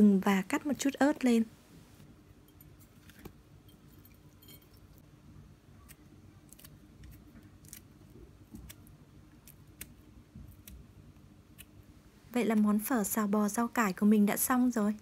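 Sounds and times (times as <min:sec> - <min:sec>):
low steady hum: 0:00.0 - 0:15.0
scissors snipping: 0:05.8 - 0:10.8.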